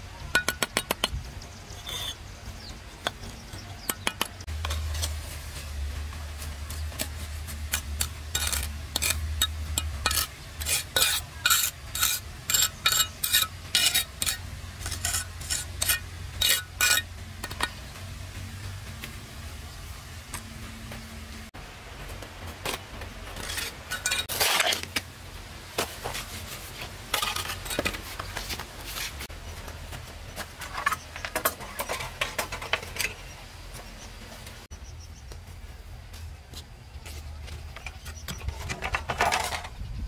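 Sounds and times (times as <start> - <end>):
metal kitchenware clinking: 23.4 - 24.9.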